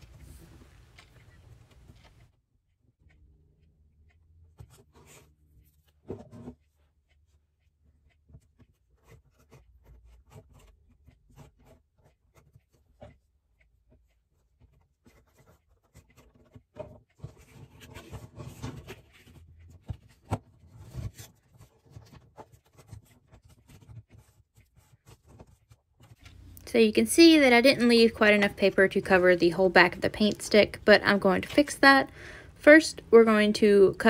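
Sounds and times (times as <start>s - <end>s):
paper rustling and rubbing: 14.0s - 26.5s.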